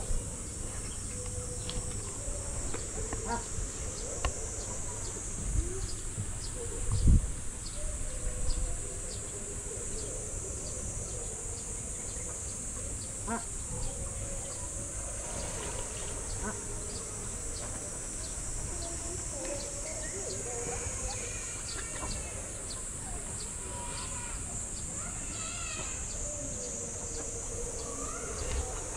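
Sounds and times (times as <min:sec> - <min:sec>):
high-pitched insect drone: 0:00.0 - 0:28.9.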